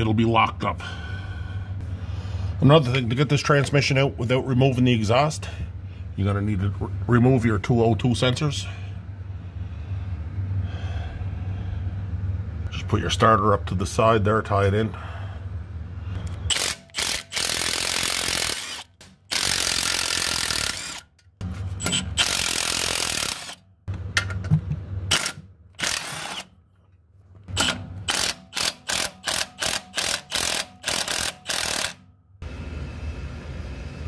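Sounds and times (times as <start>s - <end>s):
impact wrench spinning bolts: 16.4s - 23.6s, 25.1s - 26.6s, 27.4s - 32.0s.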